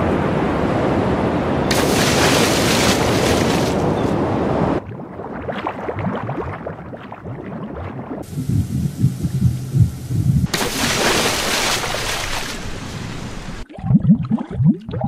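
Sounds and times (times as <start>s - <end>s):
water splashing and surf: 0.9s - 8.4s, 10.4s - 13.7s
underwater bubbling: 4.8s - 15.0s
low throbbing pulses: 8.2s - 10.5s.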